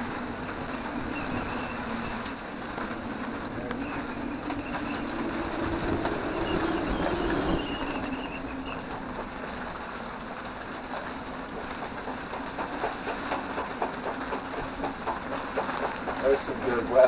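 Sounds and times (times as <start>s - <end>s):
gusty wind: 0.0s - 9.8s
faint wind whistle: 3.8s - 8.9s.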